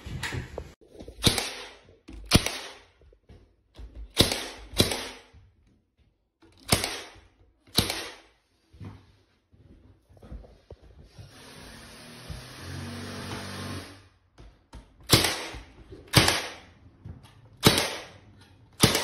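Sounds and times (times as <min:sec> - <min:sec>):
nail gun shots: 0:01.2 - 0:02.9, 0:04.1 - 0:05.3, 0:06.6 - 0:08.3, 0:15.1 - 0:16.7, 0:17.6 - 0:18.2, 0:18.8 - 0:19.0.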